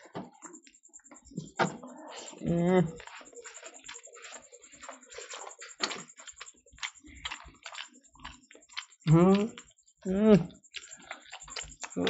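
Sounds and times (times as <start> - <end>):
chewing: 0.4 - 12.0
fingers squishing rice: 3.0 - 12.0.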